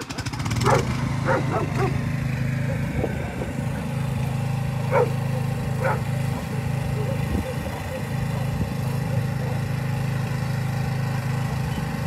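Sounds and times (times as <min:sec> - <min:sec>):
low engine hum: 0:00.0 - 0:12.0
dogs barking: 0:00.6 - 0:03.9, 0:04.8 - 0:09.7.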